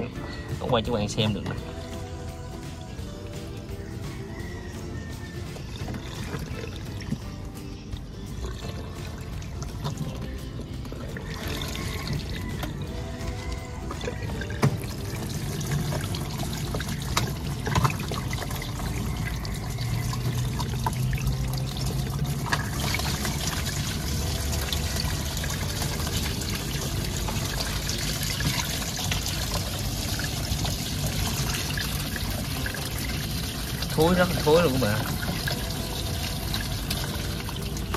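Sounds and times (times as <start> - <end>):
water running and splashing: 8.4 - 37.9.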